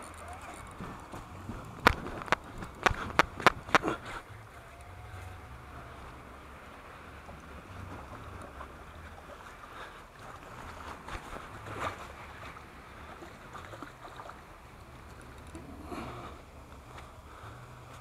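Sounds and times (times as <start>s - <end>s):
sharp clicks and knocks: 0.0s - 3.9s
water lapping against rocks: 0.0s - 18.0s
wind rumble on microphone: 0.0s - 18.0s.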